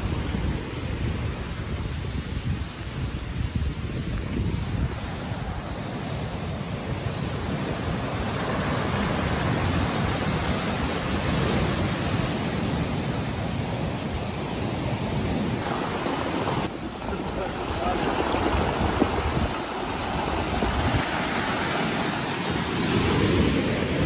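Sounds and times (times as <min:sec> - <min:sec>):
surf breaking on pebbly shore: 0:15.6 - 0:24.0.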